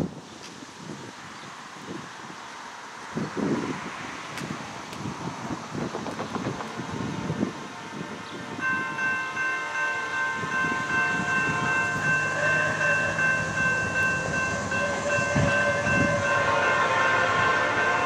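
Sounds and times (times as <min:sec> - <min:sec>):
wind rumble on microphone: 0:00.0 - 0:09.2, 0:10.2 - 0:18.0
locomotive air horn chord: 0:07.6 - 0:18.0.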